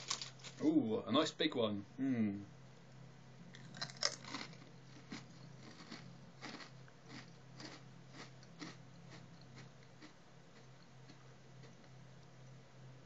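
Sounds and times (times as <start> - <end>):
chewing crunches: 3.5 - 12.0
crisp bitten with crunch: 3.6 - 12.0.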